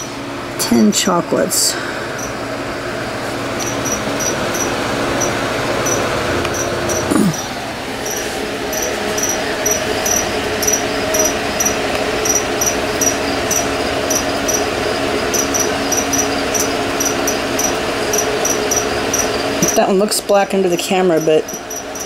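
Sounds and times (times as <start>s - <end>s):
constant hum: 0.0s - 22.0s.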